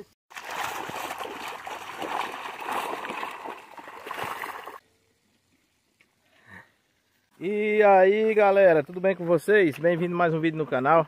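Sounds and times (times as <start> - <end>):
water rushing and splashing: 0.3 - 4.8.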